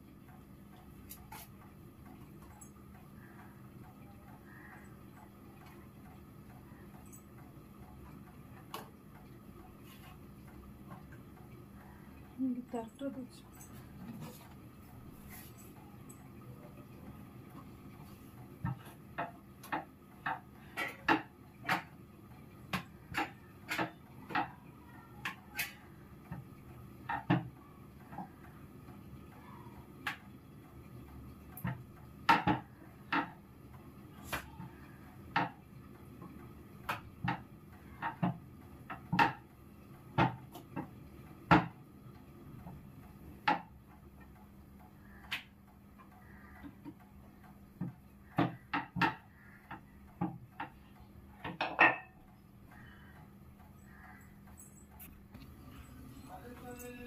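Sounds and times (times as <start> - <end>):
rolling pin knocking on board: 31.6 - 33.4, 41.5 - 41.8.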